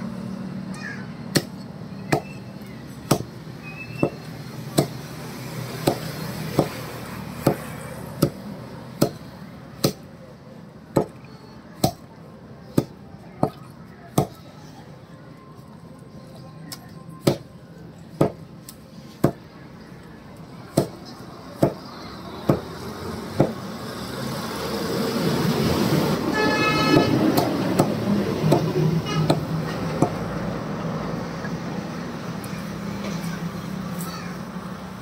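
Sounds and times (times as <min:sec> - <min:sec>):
background traffic: 0:00.0 - 0:35.0
cleaver chopping on wooden block: 0:03.1 - 0:03.3, 0:05.8 - 0:06.8, 0:09.8 - 0:10.1, 0:10.9 - 0:11.2, 0:11.8 - 0:12.0, 0:18.2 - 0:18.4, 0:21.6 - 0:21.8, 0:23.4 - 0:23.6, 0:26.9 - 0:29.4
vehicle horn: 0:26.3 - 0:27.2, 0:29.0 - 0:29.4.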